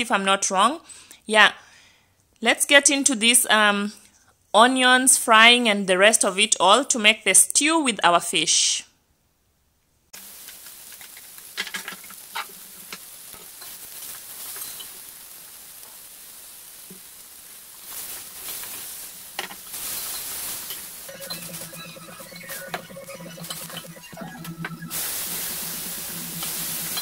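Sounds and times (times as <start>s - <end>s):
onions sizzling in hot oil: 10.2s - 27.0s.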